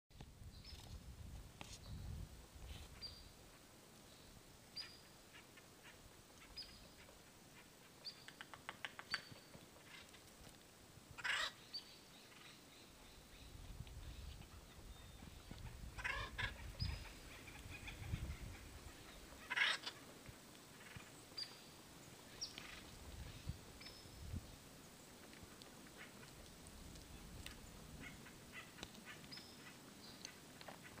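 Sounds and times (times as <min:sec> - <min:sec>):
woodpecker clicks: 0:06.3 - 0:10.6, 0:25.3 - 0:31.0
woodpecker harsh calls: 0:11.2 - 0:11.6, 0:15.5 - 0:20.1, 0:28.0 - 0:31.0.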